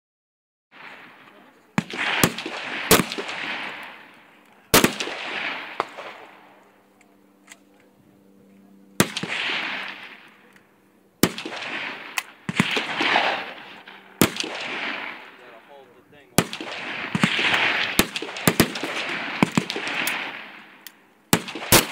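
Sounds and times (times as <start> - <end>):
gunshot echo: 0.8 - 4.1, 4.7 - 6.6, 9.0 - 10.3, 11.2 - 15.6, 16.4 - 21.9
rifle shots: 0.8 - 6.6, 9.0 - 10.4, 11.2 - 21.9.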